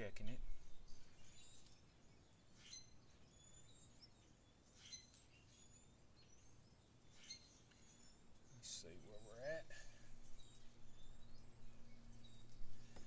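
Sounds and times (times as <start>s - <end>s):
faint bird chirps: 0.0s - 13.0s.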